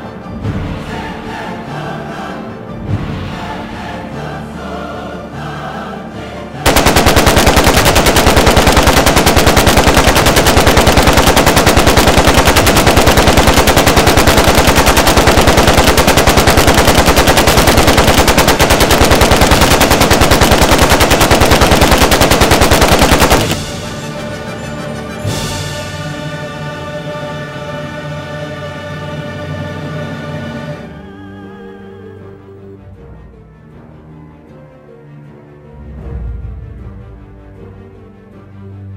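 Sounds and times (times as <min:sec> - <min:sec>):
machine-gun fire: 0:06.6 - 0:24.1.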